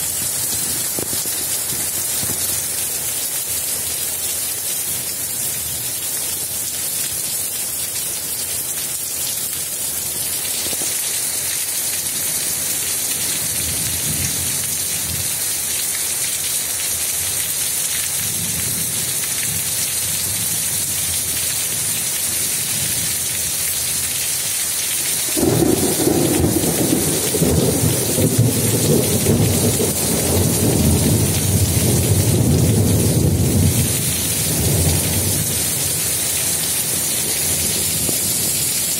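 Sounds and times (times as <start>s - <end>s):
heavy rain pouring: 0.0s - 38.9s
thunder rumbling: 25.3s - 38.9s.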